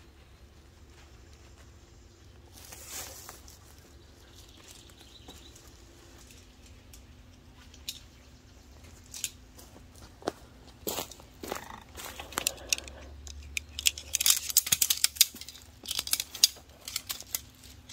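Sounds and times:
footsteps in dry leaves: 0:02.4 - 0:06.6, 0:08.8 - 0:12.8.

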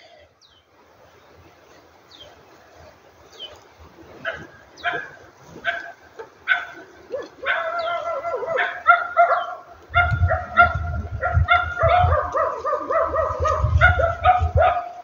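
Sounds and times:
animal yelps and whines: 0:04.2 - 0:15.0.

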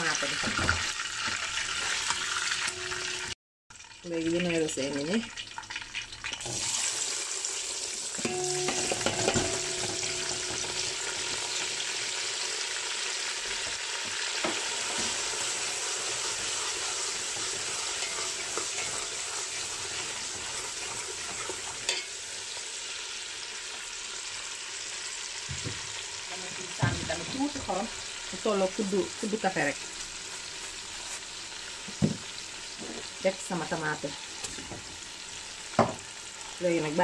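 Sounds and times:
vegetables sizzling in oil: 0:00.0 - 0:37.0
metal spoon clinking against pot: 0:08.2 - 0:10.9, 0:17.4 - 0:19.2, 0:21.8 - 0:22.1.

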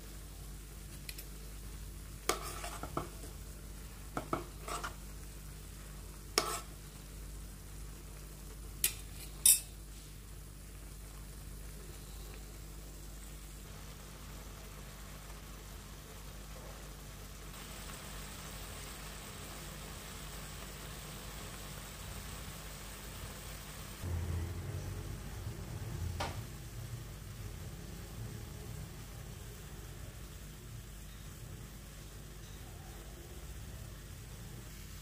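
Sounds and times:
broth simmering: 0:00.0 - 0:35.0
low steady hum: 0:00.0 - 0:35.0
spoon knocking and scraping pan: 0:02.2 - 0:03.4, 0:04.1 - 0:05.0, 0:06.3 - 0:06.8.

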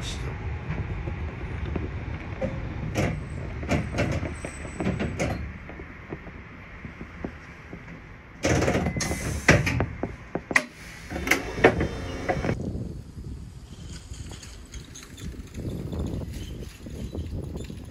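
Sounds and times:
tram rumbling: 0:00.0 - 0:12.6
loud air hiss: 0:09.0 - 0:09.6, 0:10.6 - 0:12.5.

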